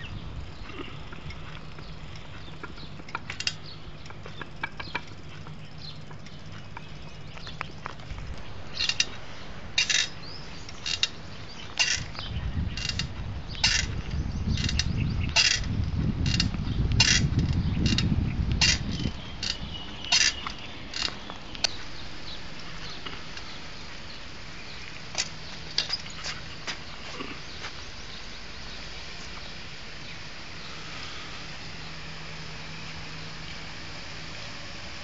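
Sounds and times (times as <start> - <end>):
low rumble of movement: 0.0 - 35.0
high mechanical squeaks: 9.8 - 21.3.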